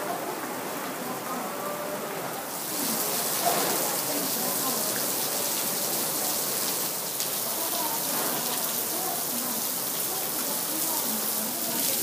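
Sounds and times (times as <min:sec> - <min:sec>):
heavy rain on glass roof: 0:00.0 - 0:12.0
rain on wet paving: 0:00.0 - 0:12.0.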